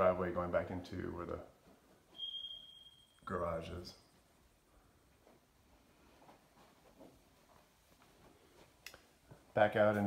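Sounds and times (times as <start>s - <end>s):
faint soft footsteps: 1.0s - 2.4s, 4.1s - 10.0s.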